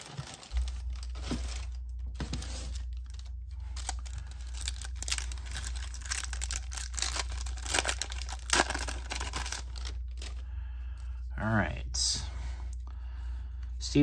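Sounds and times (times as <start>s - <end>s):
steady low hum: 0.0s - 14.0s
card pack wrapper tearing: 3.0s - 10.4s.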